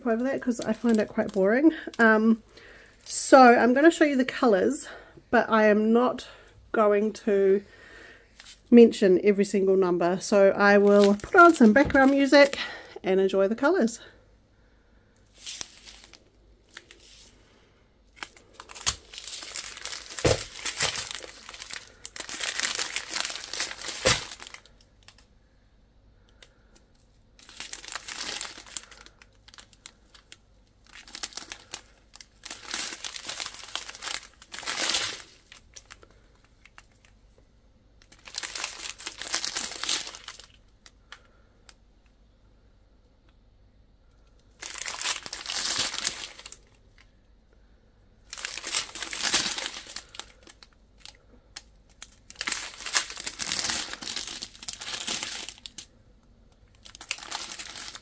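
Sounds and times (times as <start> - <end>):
plastic packs crinkling: 0.0 - 3.3, 10.6 - 12.9, 15.2 - 25.3, 26.3 - 37.2, 38.0 - 41.8, 44.2 - 47.1, 48.2 - 58.0.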